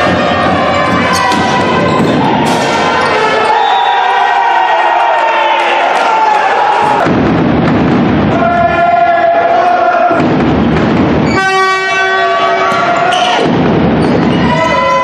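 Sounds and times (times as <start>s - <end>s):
horn blasts: 0.0s - 4.4s, 11.2s - 13.5s, 14.4s - 15.0s
crowd noise: 0.0s - 15.0s.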